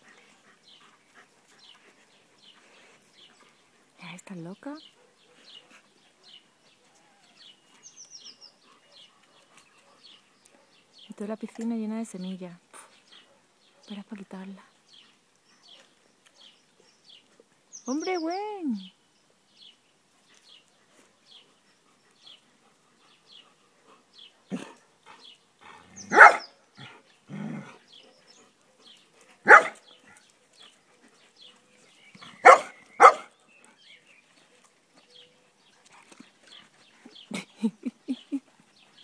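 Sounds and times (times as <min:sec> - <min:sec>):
dogs barking: 0:25.8 - 0:26.6, 0:29.4 - 0:29.9, 0:32.4 - 0:33.4.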